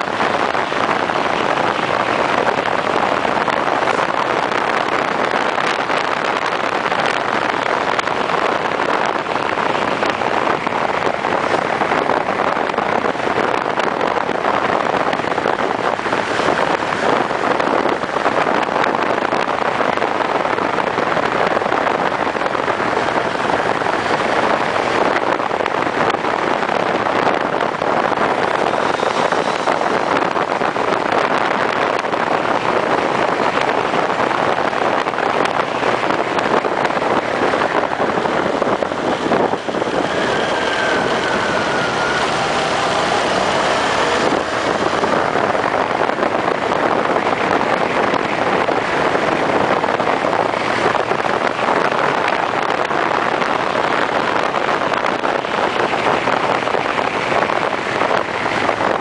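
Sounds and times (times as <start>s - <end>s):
wind rush: 0.0s - 59.0s
motorcycle engine: 35.4s - 54.1s.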